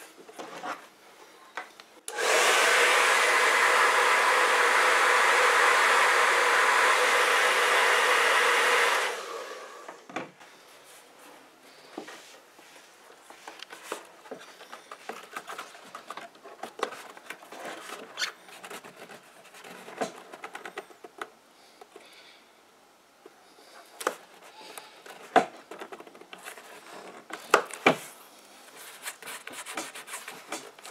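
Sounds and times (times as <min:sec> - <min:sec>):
hair dryer blowing: 0:02.1 - 0:10.1.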